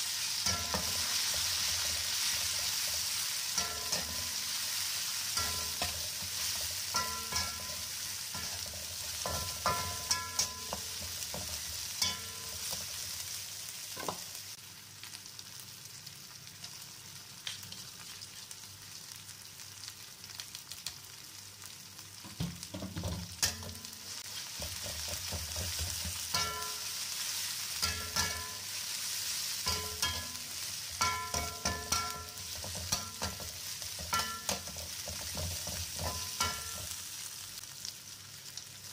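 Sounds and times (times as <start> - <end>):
paste sizzling in oil: 0.0 - 38.9
metal spatula scraping pan: 0.4 - 13.0, 23.4 - 27.0, 27.8 - 28.7, 29.6 - 36.9.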